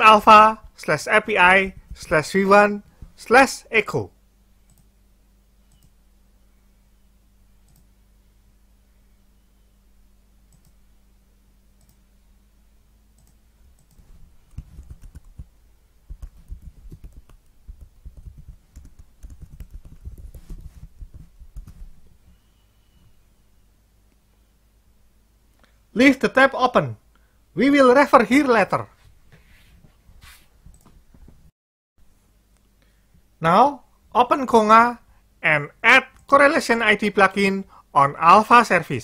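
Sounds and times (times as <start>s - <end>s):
faint mouse clicks: 4.7s - 4.9s, 5.6s - 6.0s, 7.6s - 7.9s, 10.5s - 10.8s, 11.8s - 12.0s, 13.2s - 15.2s
computer keyboard typing: 13.2s - 15.5s, 16.1s - 22.1s.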